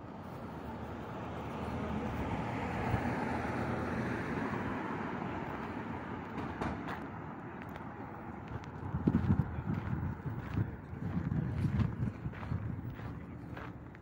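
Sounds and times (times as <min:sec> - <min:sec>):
car passing: 0:00.0 - 0:14.0.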